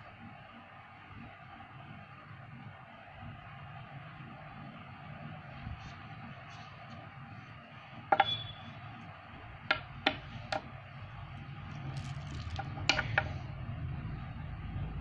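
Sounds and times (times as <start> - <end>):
low background hum: 0.0 - 15.0
magnet balls clicking together: 11.7 - 13.0.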